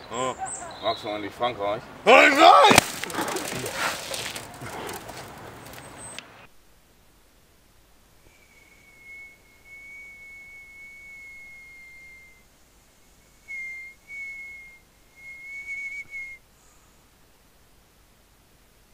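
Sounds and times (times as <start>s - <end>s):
person whistling: 8.3s - 12.4s, 13.3s - 16.4s.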